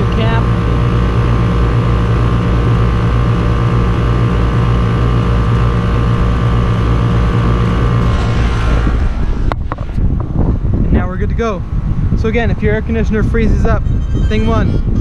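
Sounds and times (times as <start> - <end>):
air conditioner unit humming: 0.0 - 8.1.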